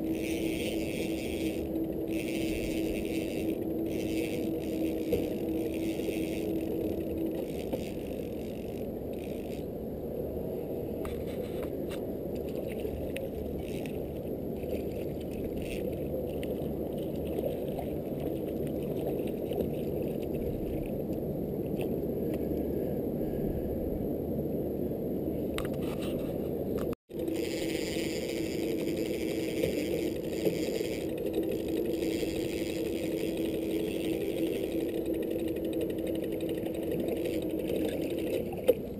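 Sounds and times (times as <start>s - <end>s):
fishing reel clicking: 0.0s - 9.6s, 12.4s - 20.9s, 27.2s - 38.3s
boat motor droning: 0.0s - 10.1s, 12.4s - 21.8s, 27.1s - 38.9s.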